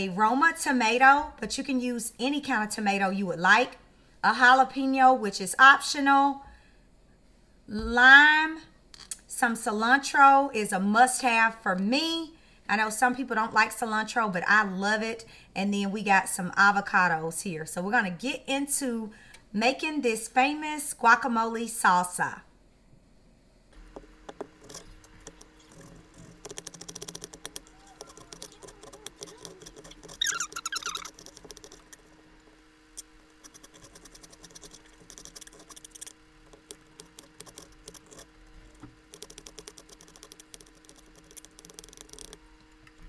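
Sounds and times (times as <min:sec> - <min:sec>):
wavering squeak: 0:27.6 - 0:31.4.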